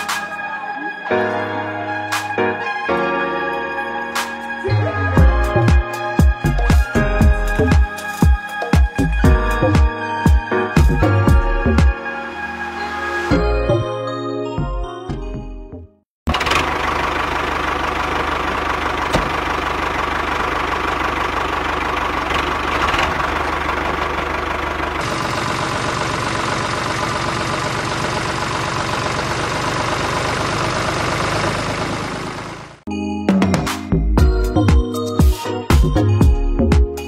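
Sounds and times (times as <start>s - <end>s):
tractor engine running: 16.3s - 32.9s.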